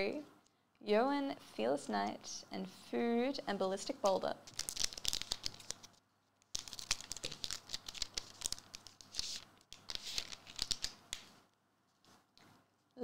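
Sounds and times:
foil wrapper tearing and crinkling: 4.5 - 5.9, 6.5 - 11.0.

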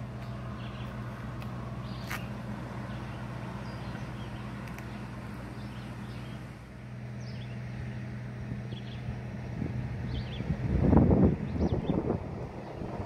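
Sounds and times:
road traffic: 0.0 - 13.0
steady low hum: 0.0 - 13.0
bird chirps: 7.2 - 7.6.

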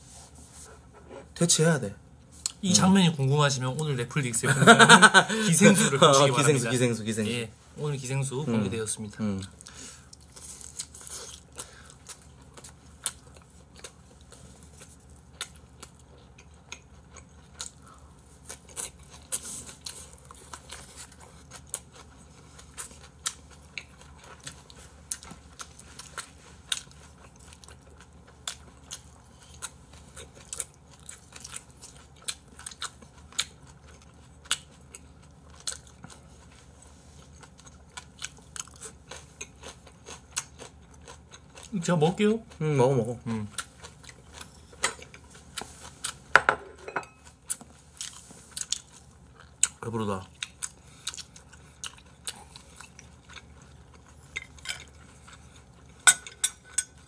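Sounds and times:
chewing and biting: 9.6 - 41.7, 47.4 - 56.0.

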